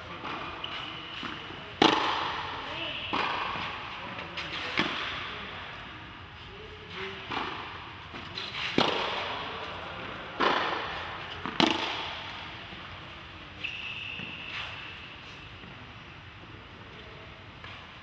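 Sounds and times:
tennis balls struck with rackets: 0:00.1 - 0:05.4, 0:07.2 - 0:13.3.

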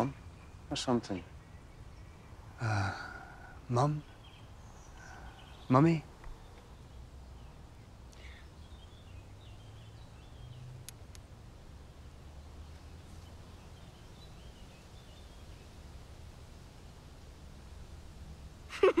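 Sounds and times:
faint birdsong chirps: 0:00.0 - 0:19.0.

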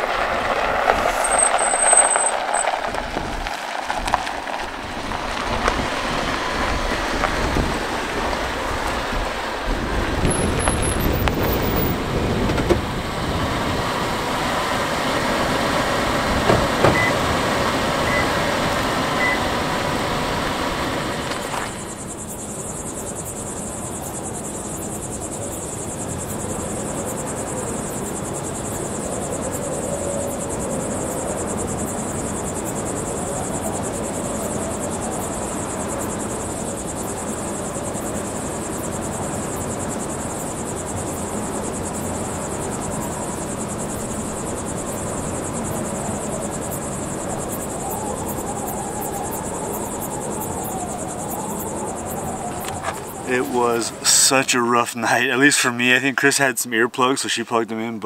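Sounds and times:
wind rushing: 0:00.0 - 0:22.1, 0:40.5 - 0:54.8
crickets trilling: 0:00.0 - 0:58.0.

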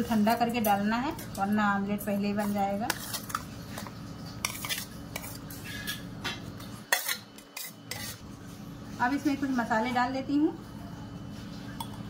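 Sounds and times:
spoon scraping a steel plate: 0:02.4 - 0:06.1, 0:06.8 - 0:08.2.

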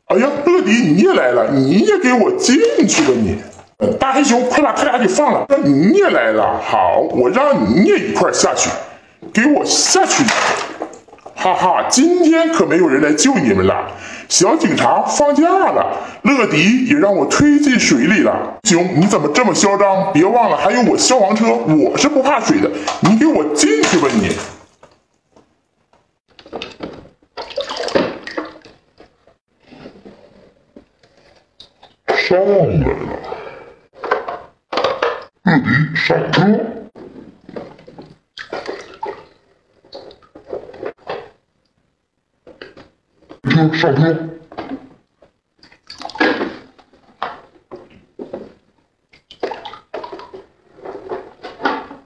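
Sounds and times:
water splashing in a sink: 0:00.7 - 0:05.2, 0:08.4 - 0:13.4, 0:20.4 - 0:25.1, 0:26.3 - 0:29.4, 0:37.0 - 0:41.4, 0:44.5 - 0:52.0
plastic scraping against sink: 0:23.8 - 0:32.2, 0:46.1 - 0:52.0.

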